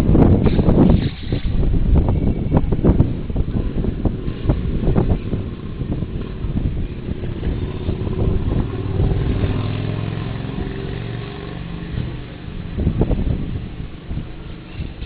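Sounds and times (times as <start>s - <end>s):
outdoor street noise: 0.0s - 15.0s
vehicle engine passing by: 3.5s - 14.2s.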